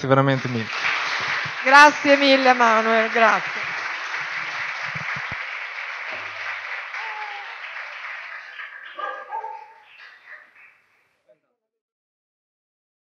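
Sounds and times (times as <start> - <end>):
audience applauding: 0.0 - 10.9.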